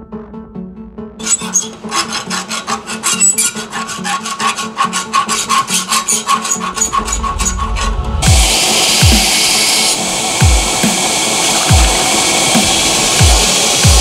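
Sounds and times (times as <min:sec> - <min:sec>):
hand file rasping on steel: 0:01.2 - 0:08.0
steady hiss: 0:08.2 - 0:14.0.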